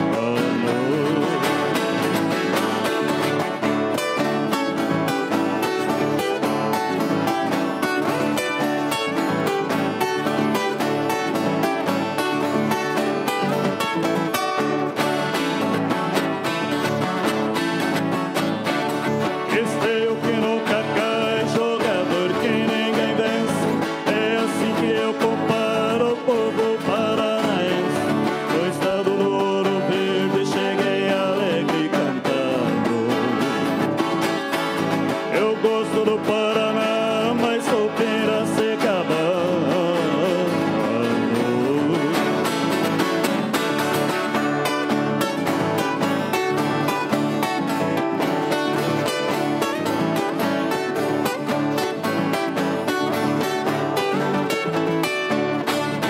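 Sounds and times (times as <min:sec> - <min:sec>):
acoustic guitar strumming: 0:00.0 - 0:56.0
stringed instrument picking melody: 0:00.0 - 0:56.0
people singing: 0:19.5 - 0:33.6, 0:35.3 - 0:42.5.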